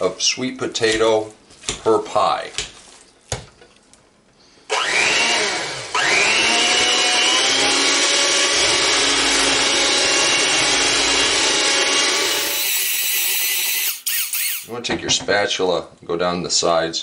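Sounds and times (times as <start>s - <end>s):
electric hand mixer running: 4.7s - 13.0s.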